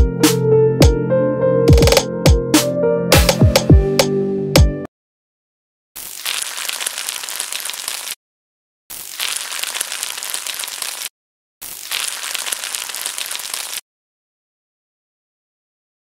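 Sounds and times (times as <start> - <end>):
oil sizzling and crackling: 6.0 - 8.2, 8.9 - 13.8.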